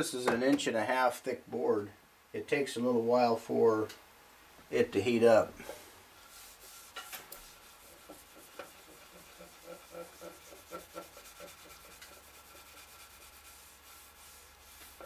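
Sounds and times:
hand rubbing wooden board: 5.6s - 15.0s.

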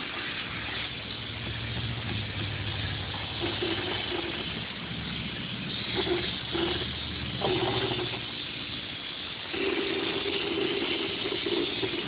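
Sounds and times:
motor hum: 0.0s - 12.0s.

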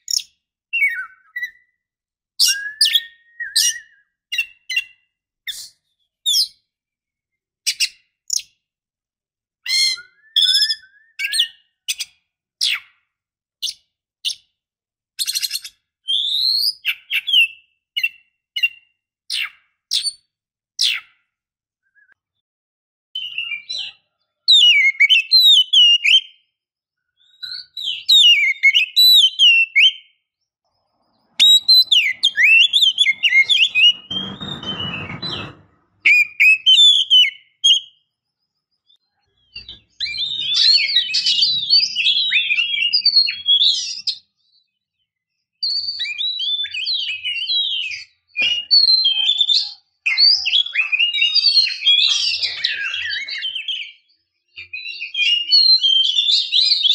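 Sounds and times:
bird singing whistled phrases: 0.0s - 1.8s, 2.4s - 6.6s, 9.7s - 12.9s, 15.2s - 20.2s, 21.8s - 22.2s, 23.2s - 26.5s, 27.2s - 30.2s, 31.4s - 35.1s, 36.0s - 38.0s, 38.9s - 44.6s, 45.6s - 56.9s
harsh rasping bird note: 31.3s - 36.2s.

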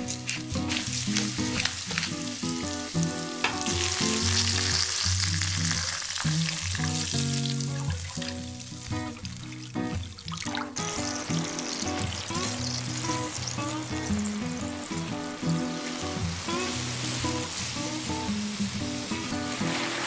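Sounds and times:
background music: 0.0s - 6.2s, 6.8s - 20.0s
garlic sizzling in oil: 0.0s - 20.0s
water poured into pan: 0.0s - 20.0s.

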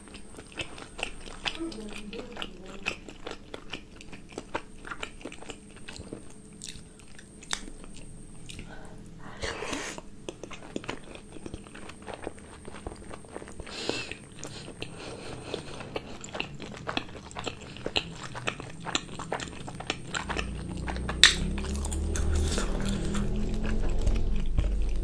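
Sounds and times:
wet chewing clicks and smacks: 0.0s - 8.7s, 10.2s - 25.0s
low rumble: 19.8s - 25.0s.

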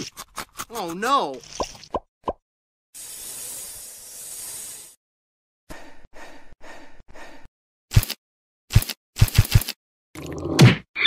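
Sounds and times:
snake hiss: 3.0s - 5.0s.

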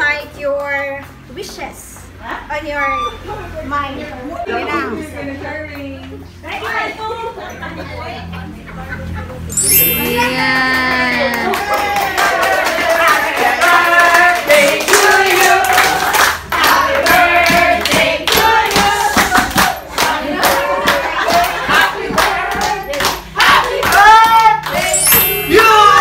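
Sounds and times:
people clapping in time: 10.4s - 25.0s
group of people singing: 11.2s - 26.0s.

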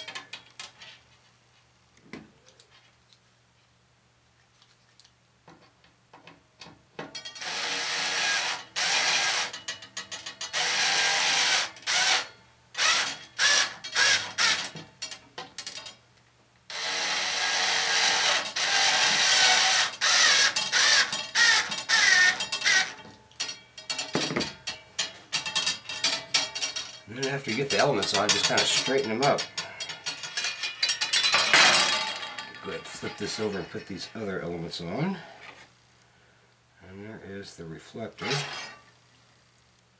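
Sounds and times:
cordless screwdriver whirring: 16.7s - 22.9s.

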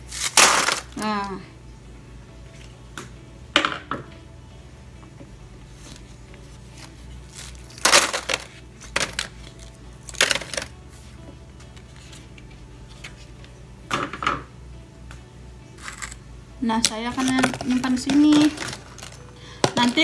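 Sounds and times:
ice cube tray crackling: 0.1s - 1.2s, 6.7s - 10.8s, 15.8s - 16.2s, 16.8s - 20.0s.

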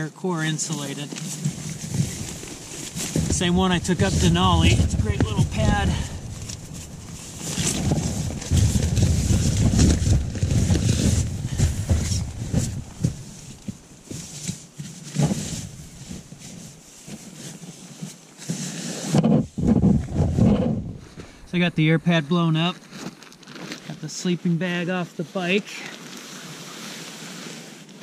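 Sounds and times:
nylon pad rustling and scuffing: 0.7s - 21.4s.

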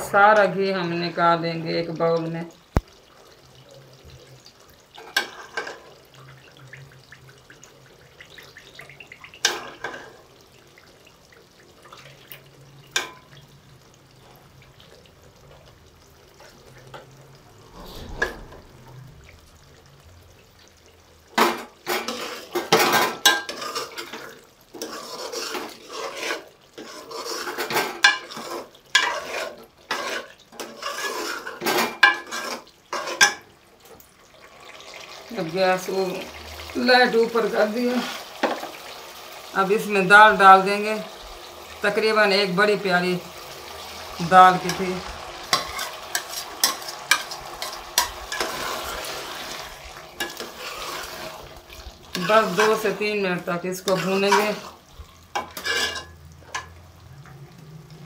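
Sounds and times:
metal spoon scraping in pot: 24.8s - 33.4s, 50.2s - 51.5s, 52.1s - 53.0s, 55.4s - 56.7s.

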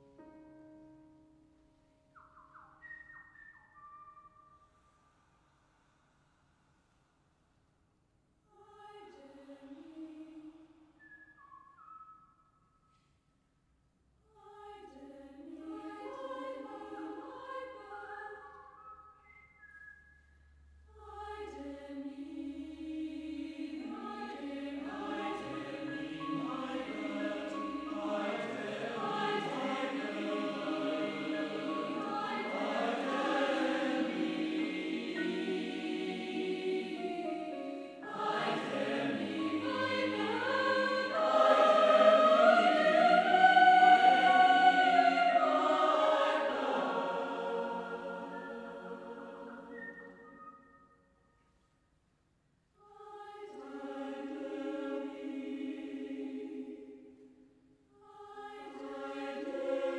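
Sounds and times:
mixed choir singing: 14.5s - 18.4s, 21.0s - 50.3s, 52.9s - 57.2s, 58.0s - 59.9s.

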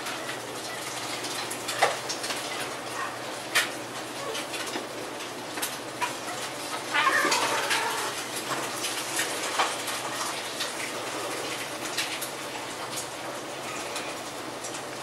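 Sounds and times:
low cat call: 6.9s - 8.2s.

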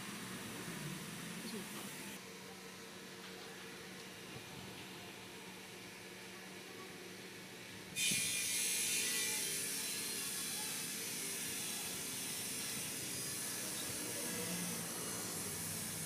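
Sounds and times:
loud steady hiss: 8.0s - 16.0s.

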